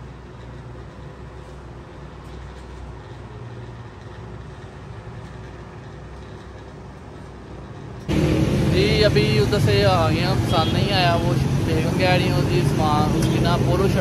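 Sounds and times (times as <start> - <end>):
low rumble: 7.7 - 13.2.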